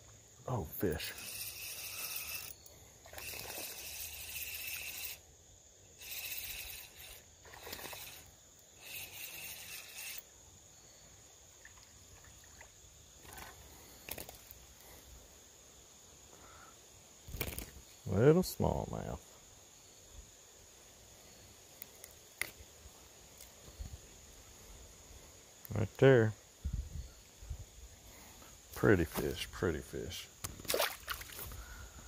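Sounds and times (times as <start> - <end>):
fishing reel cranking: 0.8 - 5.2, 6.0 - 10.3.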